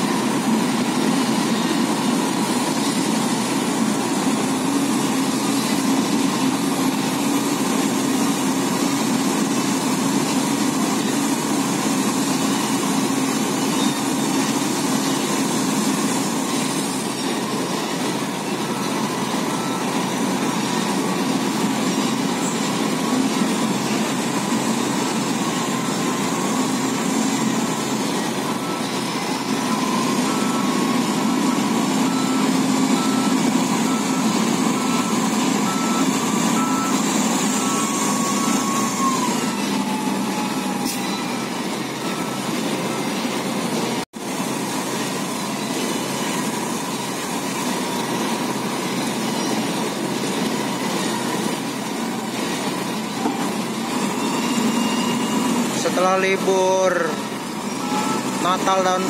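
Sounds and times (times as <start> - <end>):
diesel engines running: 0.0 - 59.0
backup alarm beeping: 18.5 - 24.0, 24.8 - 43.3, 53.1 - 59.0.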